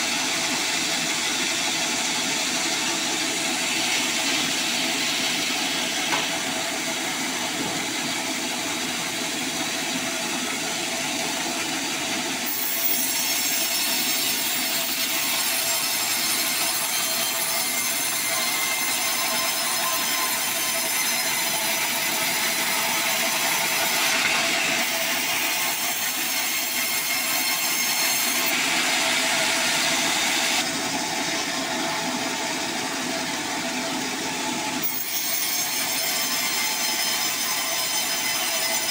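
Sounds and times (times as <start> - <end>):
band saw cutting log: 0.0 - 38.9.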